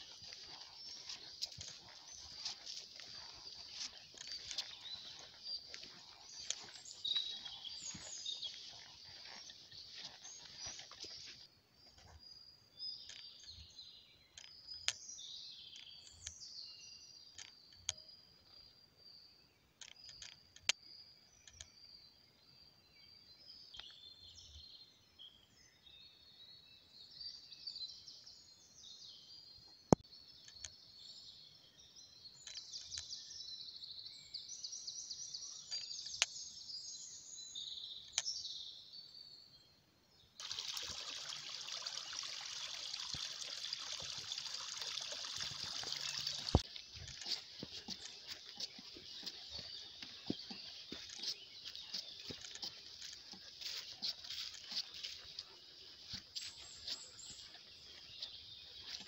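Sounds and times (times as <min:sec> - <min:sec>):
footsteps crunching dry leaves: 0:00.0 - 0:11.5, 0:40.4 - 0:59.0
small birds chirping: 0:00.0 - 0:59.0.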